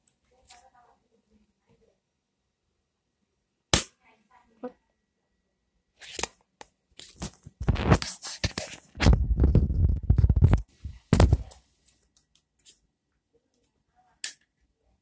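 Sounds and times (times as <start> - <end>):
sharp snap: 3.7 - 4.0
fingers rubbing phone microphone: 7.6 - 11.0.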